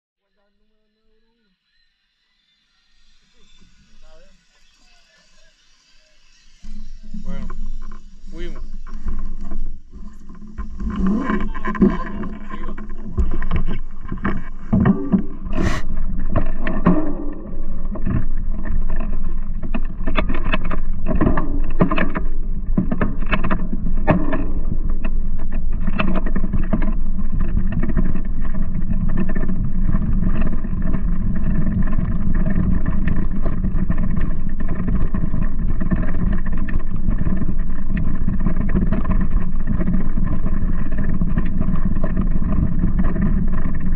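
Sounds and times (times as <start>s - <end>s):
wind and tyres rumbling: 6.8s - 43.9s
bike knocks and rattles: 8.9s - 43.9s.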